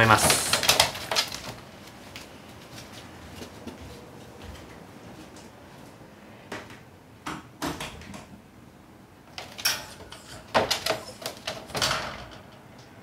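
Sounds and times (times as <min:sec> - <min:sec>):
puppy clattering in wire playpen: 0:00.0 - 0:01.8, 0:09.3 - 0:13.0.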